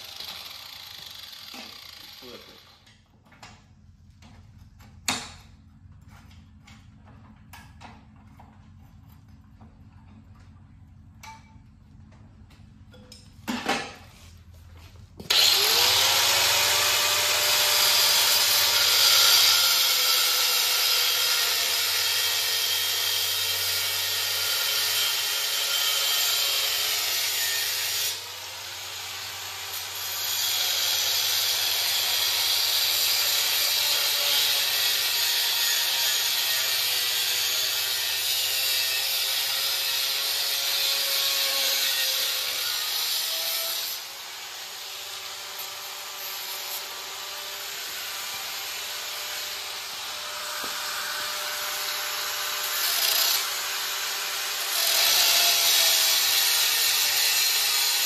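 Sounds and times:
grinder motor whine: 15.2s - 20.7s.

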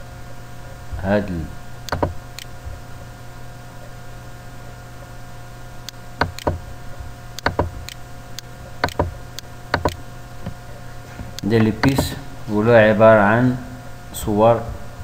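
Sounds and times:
electrical hum and hiss: 0.0s - 15.0s
computer mouse clicks: 1.9s - 2.5s, 5.9s - 6.6s, 7.4s - 10.6s, 11.4s - 12.1s.

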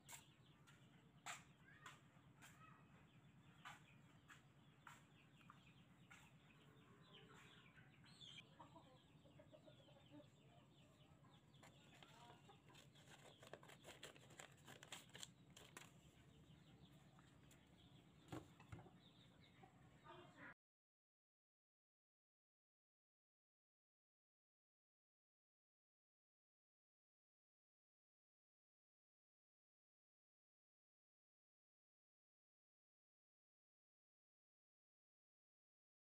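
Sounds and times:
scissors cutting paper: 12.7s - 16.0s.

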